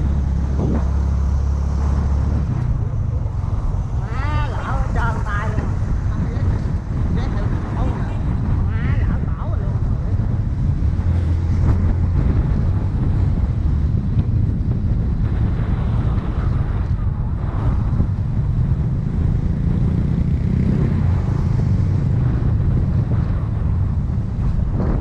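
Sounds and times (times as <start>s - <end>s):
motor rumbling: 0.0s - 7.5s
wind buffeting microphone: 0.0s - 25.0s.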